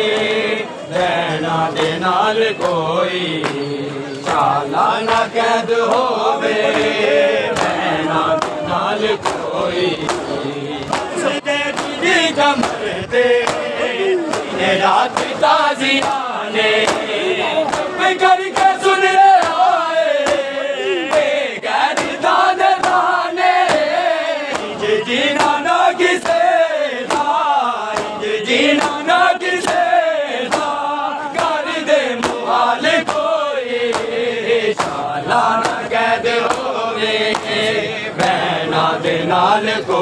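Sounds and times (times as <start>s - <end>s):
crowd of men chanting: 0.0s - 40.0s.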